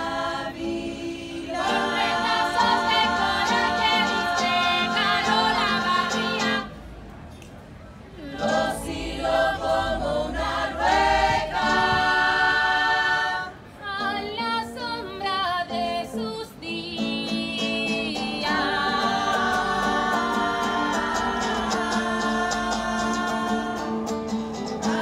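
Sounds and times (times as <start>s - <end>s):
acoustic guitar strumming: 0.0s - 6.7s, 17.0s - 25.0s
women singing together: 0.0s - 6.7s, 8.2s - 25.0s.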